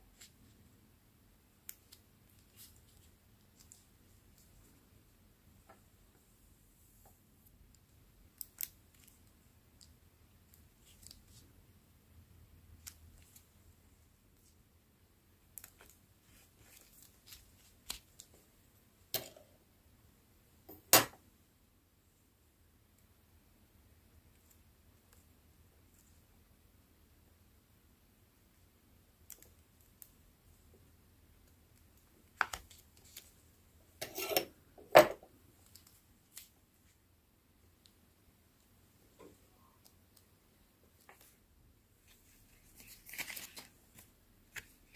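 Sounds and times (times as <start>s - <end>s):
paper rustling: 42.0s - 44.9s.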